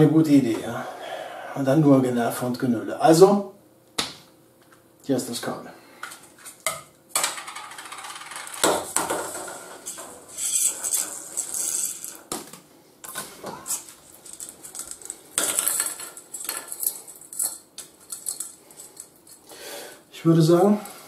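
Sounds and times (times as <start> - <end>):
cable spool rattling: 9.2 - 12.3, 13.7 - 19.4.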